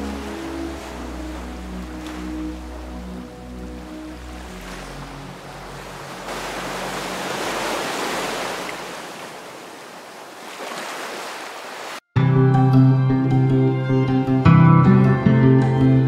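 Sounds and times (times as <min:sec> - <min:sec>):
sea waves washing on beach: 0:00.0 - 0:12.0.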